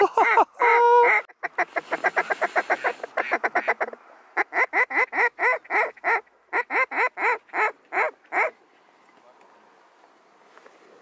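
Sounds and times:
duck call clucks: 0.1s - 8.6s
duck call quacks: 0.2s - 8.6s.

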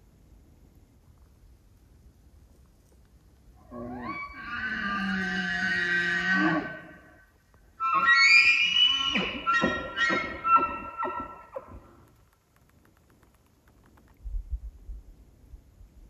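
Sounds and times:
elk bugling: 7.8s - 12.0s.

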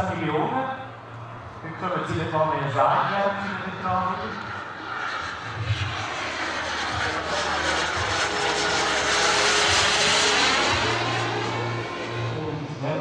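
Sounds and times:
model jet engine rushing: 2.6s - 13.0s.

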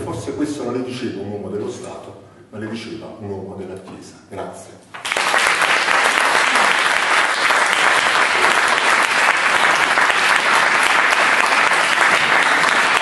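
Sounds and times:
audience applauding: 5.0s - 13.0s.

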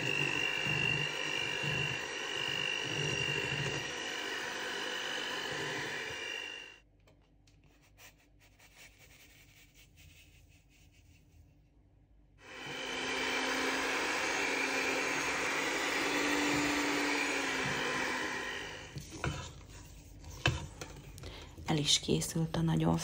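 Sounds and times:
electric hand mixer whining: 0.0s - 6.8s, 12.4s - 19.7s.

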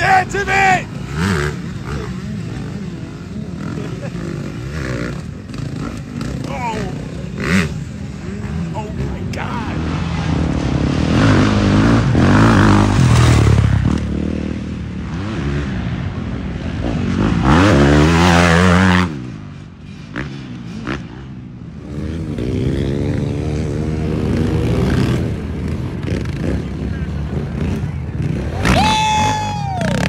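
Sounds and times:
motorcycle engines revving: 0.0s - 30.0s
quad engine revving: 21.8s - 30.0s.

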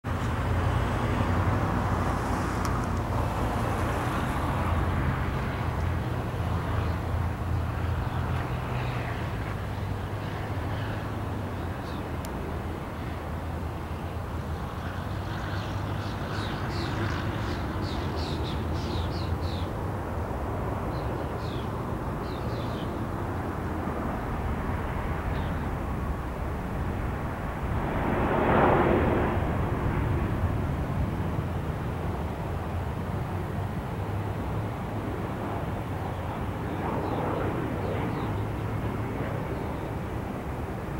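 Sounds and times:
small plane engine droning: 0.1s - 40.9s
low rumble and hiss: 23.0s - 40.9s
loud rushing swell: 24.1s - 32.1s.

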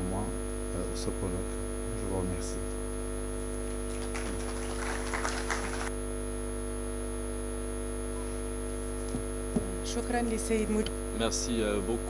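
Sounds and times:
electrical mains hum: 0.0s - 12.0s
scattered applause: 3.6s - 5.9s.

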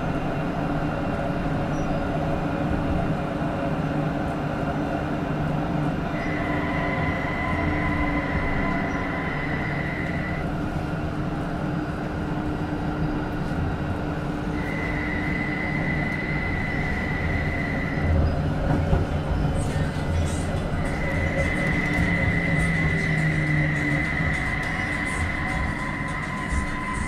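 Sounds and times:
tram wheels rumbling: 0.0s - 27.0s
high whine: 6.1s - 10.6s, 14.4s - 18.5s, 19.4s - 27.0s.

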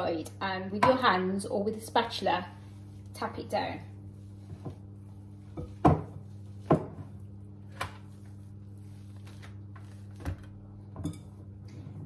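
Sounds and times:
steady low hum: 0.0s - 12.0s
bowl and dough knocking: 5.5s - 7.1s.

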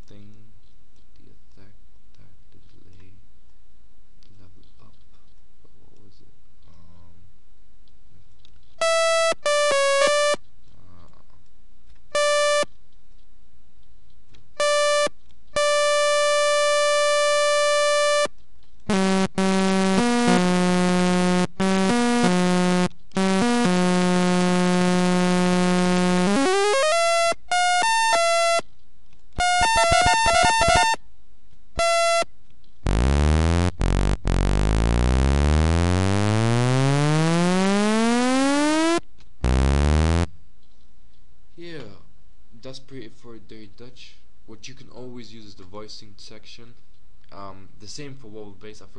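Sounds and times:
buzzy synthesizer lead: 8.8s - 10.4s, 12.2s - 12.6s, 14.6s - 18.3s, 18.9s - 28.6s, 29.4s - 31.0s, 31.8s - 32.2s, 32.8s - 40.3s.

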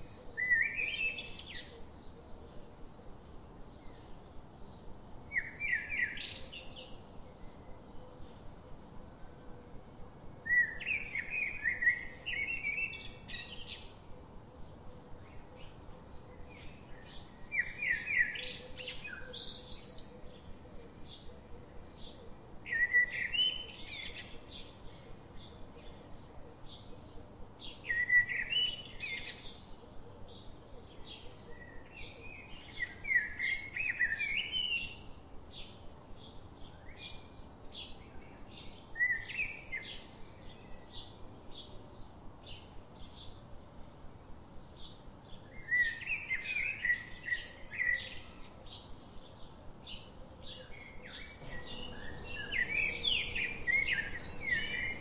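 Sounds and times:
birds warbling: 51.4s - 55.0s
high bird chirps: 51.4s - 55.0s.

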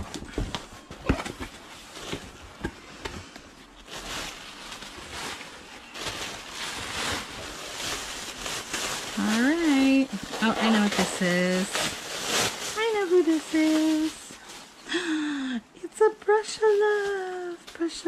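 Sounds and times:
objects tapping and knocking: 0.0s - 3.5s
packaging rustling: 0.0s - 14.8s.

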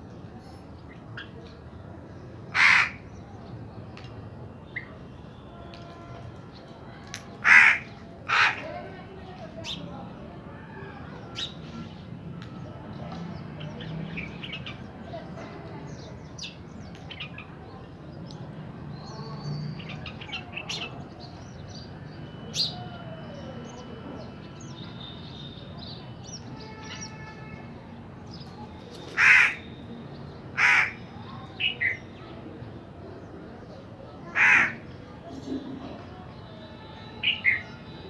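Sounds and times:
crow cawing: 2.5s - 3.0s, 7.4s - 8.7s, 29.2s - 29.7s, 30.6s - 31.0s, 34.3s - 34.8s.

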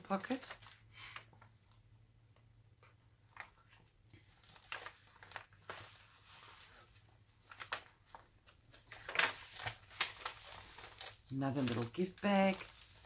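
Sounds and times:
paper rustling: 0.0s - 1.8s, 2.9s - 13.0s
page turning: 3.2s - 13.0s.

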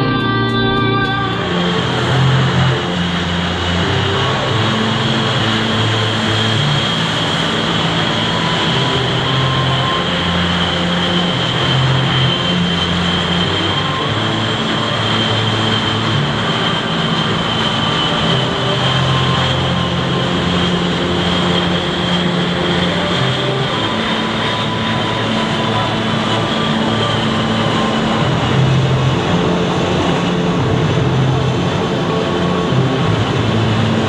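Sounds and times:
jet engines running: 0.0s - 34.0s.

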